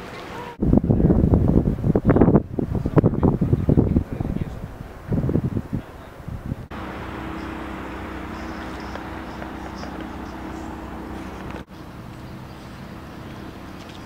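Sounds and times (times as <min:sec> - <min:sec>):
motorboat engine humming: 0:05.9 - 0:14.0.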